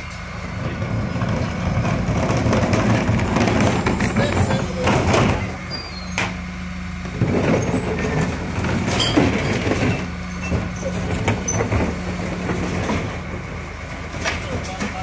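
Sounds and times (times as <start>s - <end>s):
truck engine and pump tone: 0.0s - 15.0s
bin and lifter clattering: 1.7s - 6.4s, 7.0s - 13.5s.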